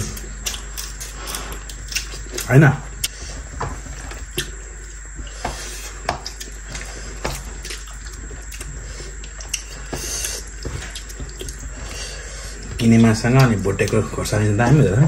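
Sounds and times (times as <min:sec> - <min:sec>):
chewing: 0:00.2 - 0:03.4, 0:04.2 - 0:14.1.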